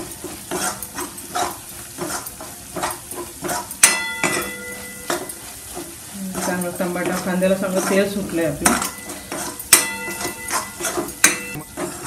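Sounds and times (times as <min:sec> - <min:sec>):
masala sizzling in oil: 0:00.0 - 0:12.0
spoon scraping a pan: 0:00.0 - 0:12.0
spoon knocking ringing pan: 0:03.8 - 0:05.5, 0:06.4 - 0:12.0.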